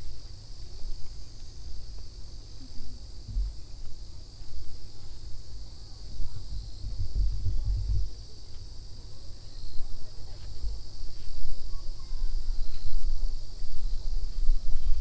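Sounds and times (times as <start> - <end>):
insects chorus: 0.0 - 15.0
low rumble: 3.0 - 4.2.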